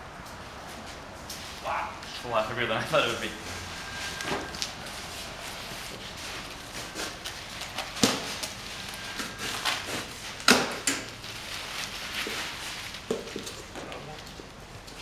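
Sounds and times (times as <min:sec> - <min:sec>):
plastic packaging crinkling: 0:04.5 - 0:14.3.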